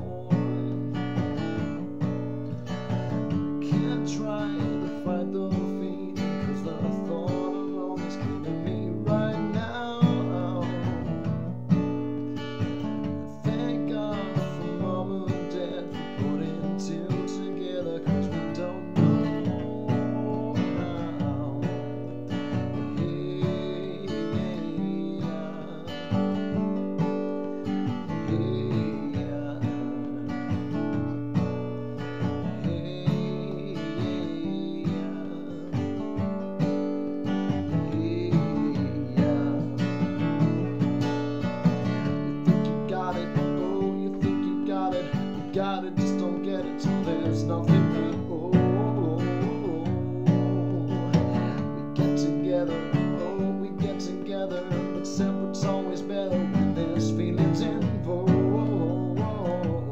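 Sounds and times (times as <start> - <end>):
acoustic guitar strumming: 0.0 - 59.9.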